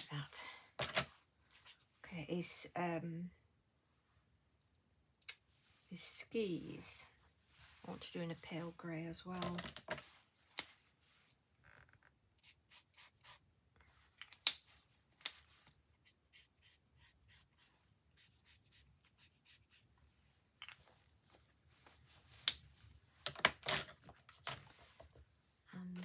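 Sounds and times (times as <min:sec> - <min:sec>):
marker scratching on card: 0:16.0 - 0:19.9.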